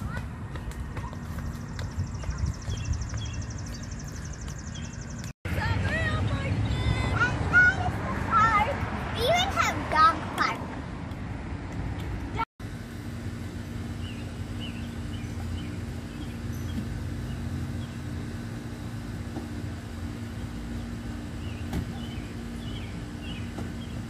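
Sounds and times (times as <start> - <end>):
constant hum: 0.0 - 24.0
small birds chirping: 0.6 - 5.3, 13.9 - 18.3, 20.3 - 24.0.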